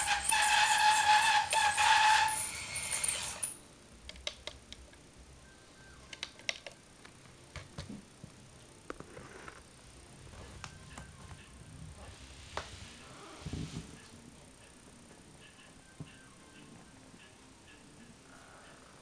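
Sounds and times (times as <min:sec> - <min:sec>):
toy truck motor whining: 0:00.0 - 0:03.6.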